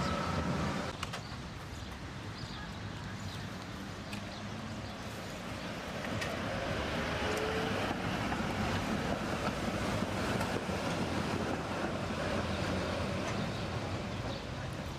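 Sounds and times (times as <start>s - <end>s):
tram wheels rumbling on rails: 0.0s - 1.0s, 5.4s - 14.9s.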